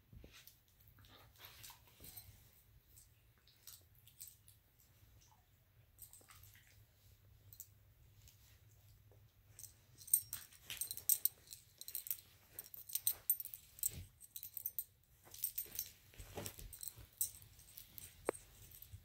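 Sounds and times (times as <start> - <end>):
soft rustling: 6.0 - 19.0.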